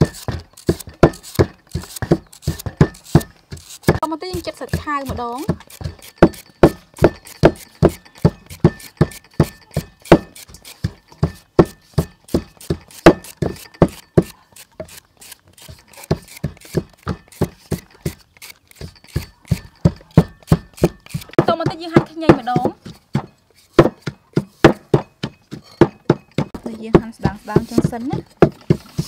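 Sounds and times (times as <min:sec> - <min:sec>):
slicer crunching through vegetable: 0:00.0 - 0:10.9, 0:12.3 - 0:21.4.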